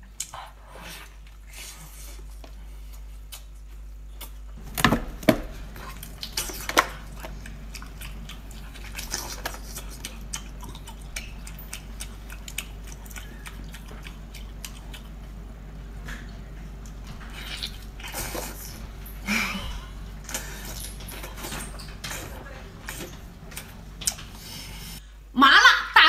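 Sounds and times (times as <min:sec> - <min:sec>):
wet chewing and lip smacks: 0:05.8 - 0:15.3.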